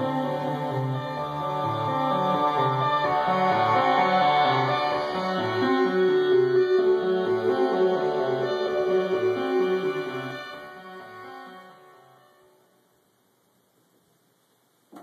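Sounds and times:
sequenced synthesizer bass line: 0.0 - 11.3
sustained synthesizer tones: 0.0 - 12.2
steady high synthesizer note: 0.0 - 12.6.

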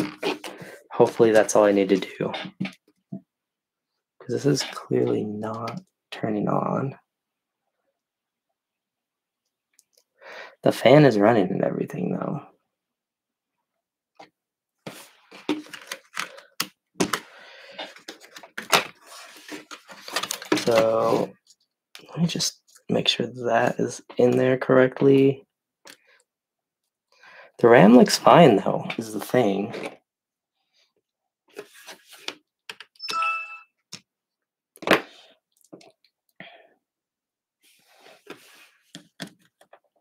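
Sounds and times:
brief ringing tone: 33.0 - 33.7.

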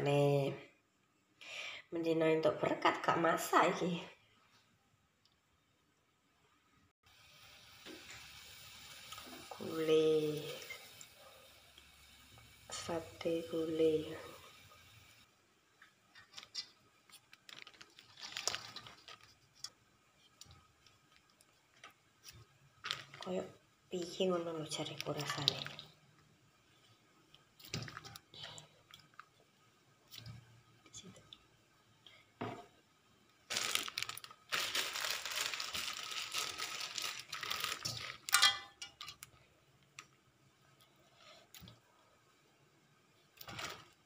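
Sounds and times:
plastic bag crinkling: 16.2 - 19.8, 22.8 - 23.4, 33.5 - 39.4, 43.4 - 44.0.

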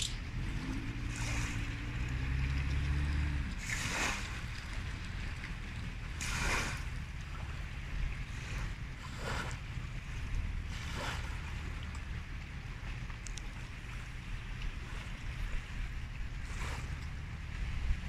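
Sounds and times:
low steady hum: 0.0 - 18.0
broad swishes: 3.6 - 4.4, 6.2 - 6.9.

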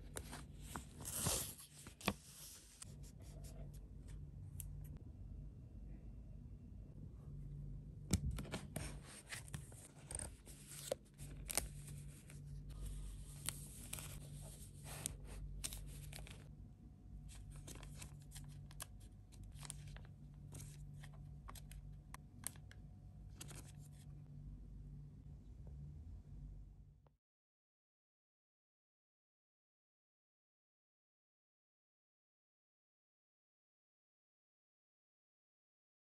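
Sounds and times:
faint low hum: 0.0 - 27.1.

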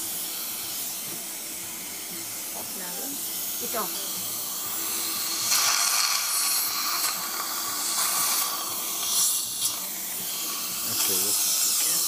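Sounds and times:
dental suction hissing: 0.0 - 12.0.

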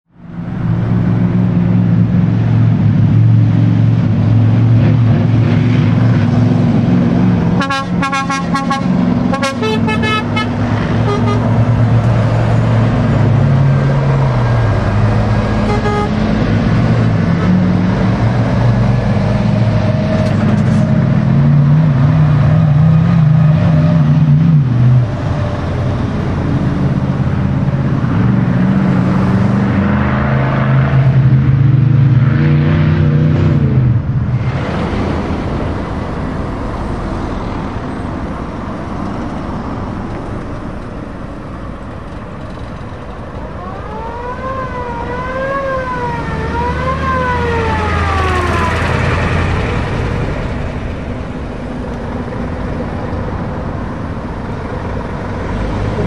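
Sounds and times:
lorry diesel engines: 0.1 - 56.0
horn blasts: 7.6 - 11.5, 15.6 - 16.2.

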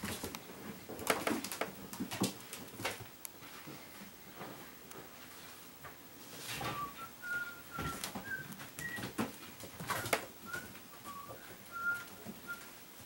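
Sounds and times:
kittens scampering on hard floor: 0.0 - 4.7, 7.7 - 12.7
whistle-like chirps: 6.7 - 9.0, 9.9 - 12.7.

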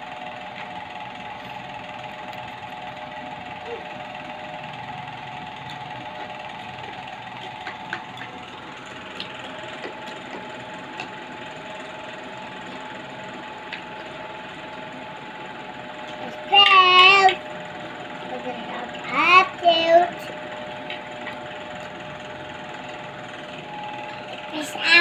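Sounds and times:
steady hum: 0.0 - 25.0.

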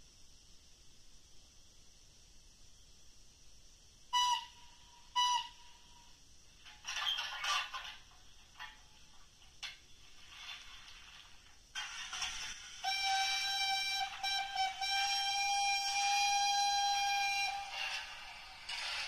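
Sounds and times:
steam locomotive whistle toots: 4.2 - 6.2, 12.8 - 19.0
bursts of hiss: 9.6 - 19.0.

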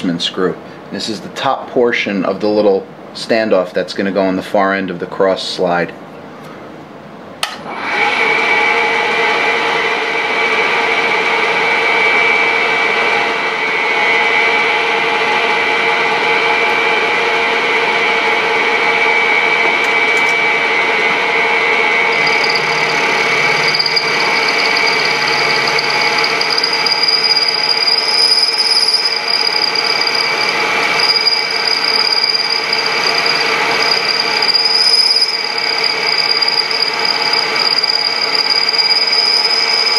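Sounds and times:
high whine: 8.6 - 39.9
milling machine spindle running: 12.2 - 39.9
end mill cutting metal: 15.2 - 39.9.

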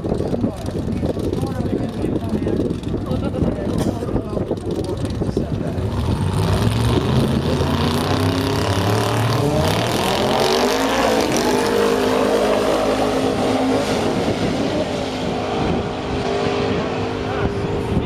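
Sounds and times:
drag racing cars accelerating: 0.0 - 18.0.

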